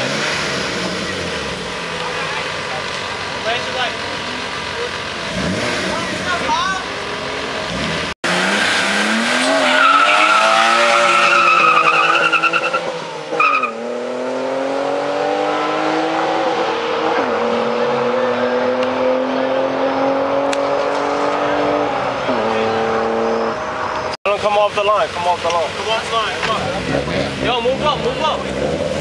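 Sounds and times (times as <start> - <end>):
tires squealing: 0.0 - 14.5, 25.0 - 29.0
tire chirp: 0.0 - 14.9
car engines revving: 0.0 - 29.0.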